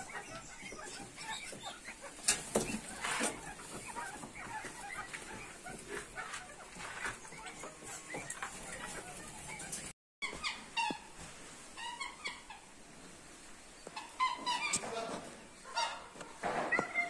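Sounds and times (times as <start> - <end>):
swans honking: 13.9 - 17.0.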